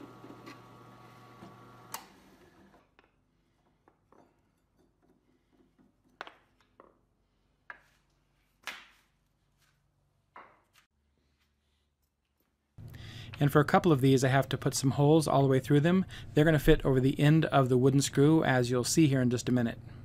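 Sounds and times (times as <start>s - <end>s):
drill press spinning down: 0.0s - 2.8s.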